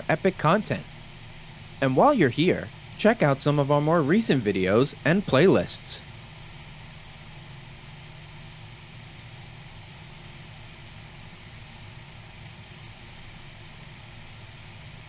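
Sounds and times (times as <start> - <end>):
low engine drone: 0.0 - 7.2.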